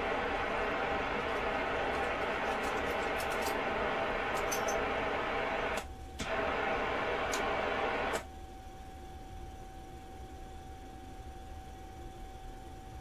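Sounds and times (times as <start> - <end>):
radio receiver hiss: 0.0 - 8.3
radio click: 0.6 - 8.2.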